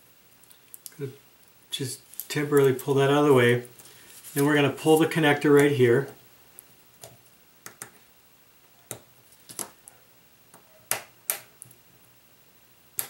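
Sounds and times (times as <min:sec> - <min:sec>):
small sharp clicks and taps: 0:06.6 - 0:08.0, 0:10.5 - 0:11.8.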